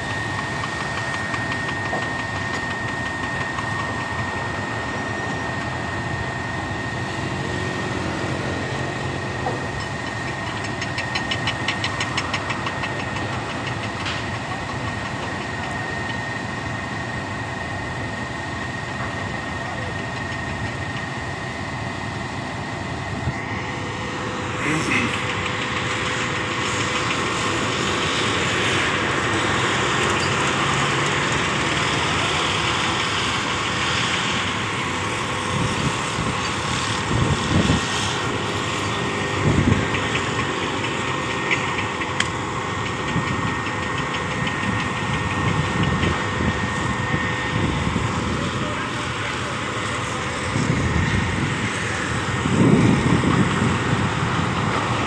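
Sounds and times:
hydraulic whine: 0.0s - 55.0s
truck engine running: 0.0s - 55.0s.

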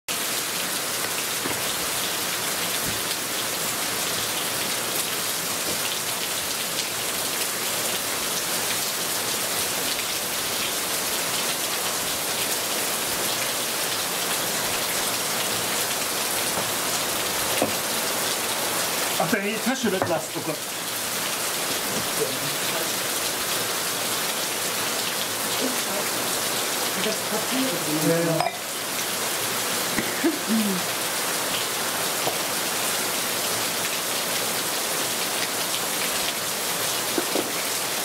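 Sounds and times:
steady rain hiss: 0.1s - 38.0s
raindrop taps: 1.0s - 1.7s.

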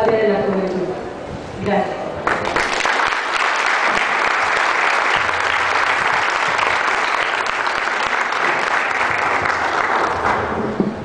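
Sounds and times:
audience applauding: 2.2s - 10.8s.

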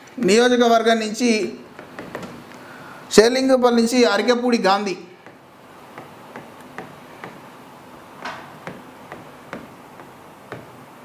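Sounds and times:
stylus tapping on glass: 5.2s - 7.5s, 8.2s - 10.8s.

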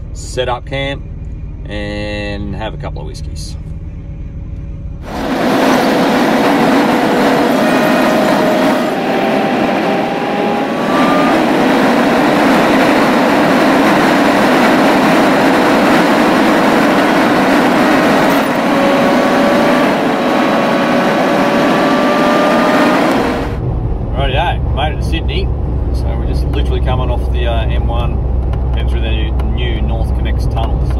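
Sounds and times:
road and wind noise: 0.0s - 30.9s
faint rising tones: 3.6s - 24.1s.

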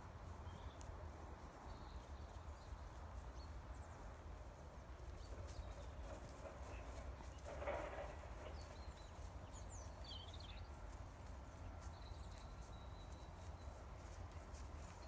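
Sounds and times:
horse hoofbeats trotting on grass: 0.0s - 15.0s
bird chirping: 5.2s - 10.8s.

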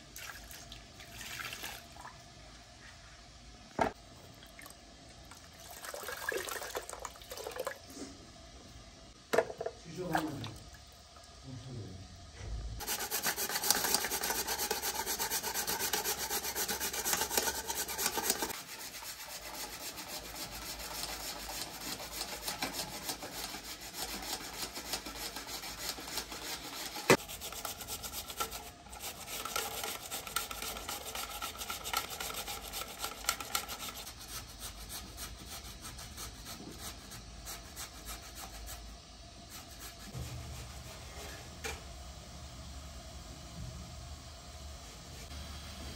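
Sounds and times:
potatoes grated on metal grater: 12.8s - 38.8s.

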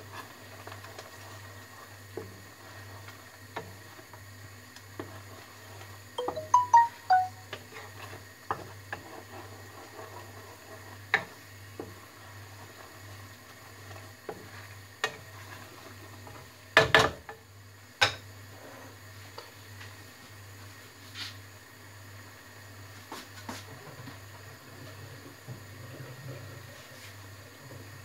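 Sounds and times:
spatula stirring sauce in wok: 0.0s - 6.2s, 7.5s - 16.8s.

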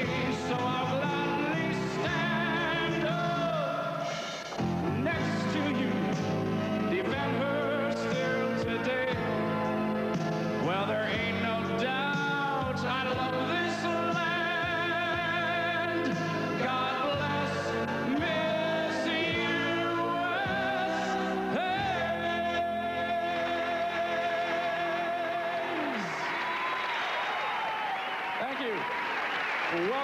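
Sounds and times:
live country ballad with singing: 0.0s - 26.8s
audience applause: 25.0s - 30.0s.

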